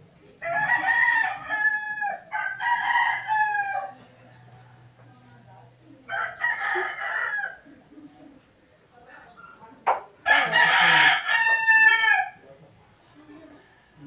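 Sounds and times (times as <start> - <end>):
rooster crowing: 0.4 - 4.0, 6.1 - 7.7, 10.3 - 12.4.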